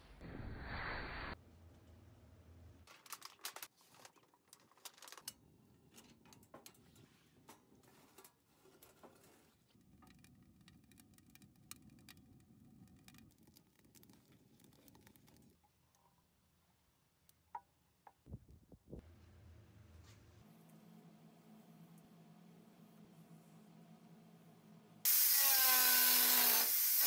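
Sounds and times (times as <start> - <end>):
wood fire crackling and popping: 9.7 - 15.9.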